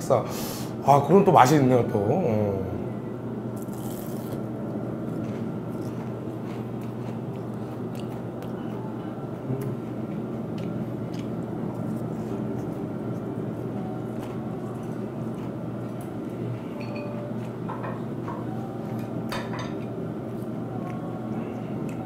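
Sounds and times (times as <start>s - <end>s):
crispy batter being chewed: 5.0s - 17.6s.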